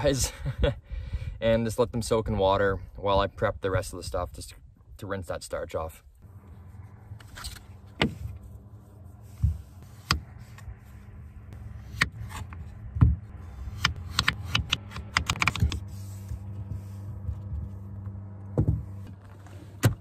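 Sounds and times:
steady low hum: 6.0 - 20.0.

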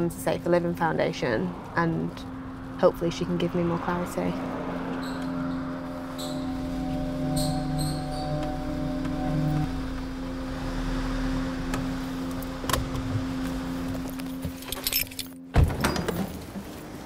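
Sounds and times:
steady low hum: 0.0 - 14.7
keys jangling: 14.5 - 15.4.

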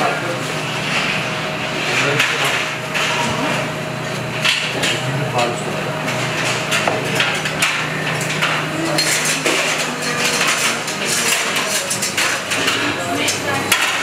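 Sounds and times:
metal pots and pans clinking: 6.2 - 14.0.

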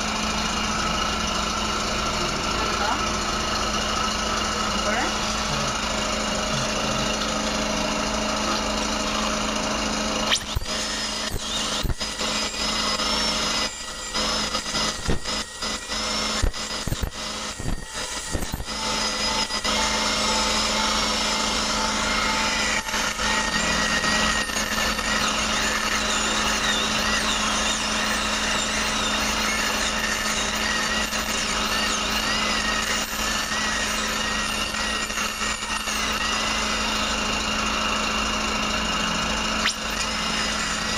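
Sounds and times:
dental drill whining: 0.0 - 40.9
drill clicks: 10.3 - 38.7.

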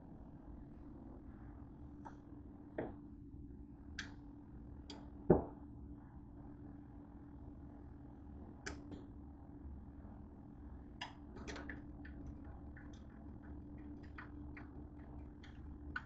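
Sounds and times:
faint steady hum: 0.0 - 16.0
light clicks and taps: 8.6 - 9.1, 11.0 - 16.0.

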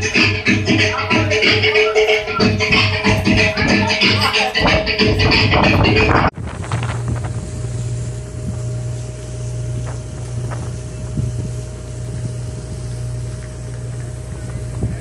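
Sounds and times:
thin high tone: 0.0 - 6.0
ship engines humming: 0.0 - 15.0
wind on microphone: 2.0 - 15.0.

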